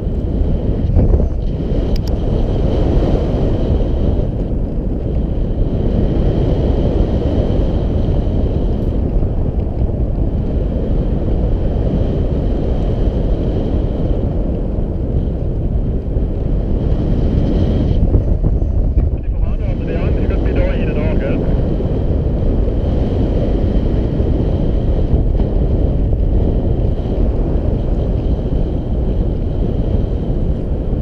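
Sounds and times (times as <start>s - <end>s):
heavy wind noise on microphone: 0.0s - 31.0s.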